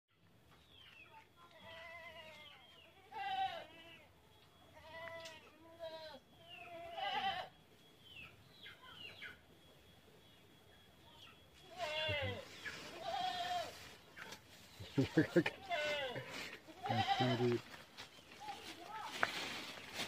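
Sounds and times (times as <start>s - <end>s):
animal bleating: 1.5s - 7.6s, 11.6s - 13.8s, 14.9s - 17.7s.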